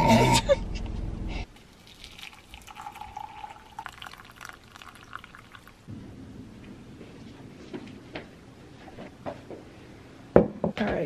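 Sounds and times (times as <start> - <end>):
water pouring into mug: 1.6 - 5.9.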